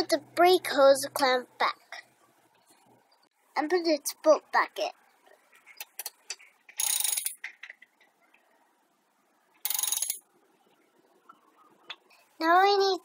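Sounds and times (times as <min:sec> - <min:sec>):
ratchet wrench clicking: 0:06.7 - 0:07.5, 0:09.6 - 0:10.2.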